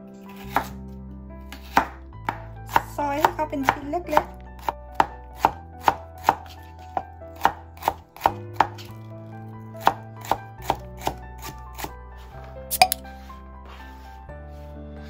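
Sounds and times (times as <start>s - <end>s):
knife chopping on cutting board: 0.3s - 0.8s, 1.5s - 8.9s, 9.8s - 11.9s, 12.7s - 13.1s.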